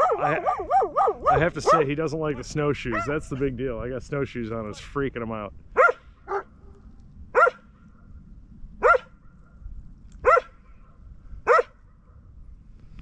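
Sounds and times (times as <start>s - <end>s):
dog barking: 0.0s - 1.9s, 2.9s - 3.2s, 5.8s - 6.5s, 7.3s - 7.6s, 8.8s - 9.2s, 10.2s - 10.6s, 11.4s - 11.8s.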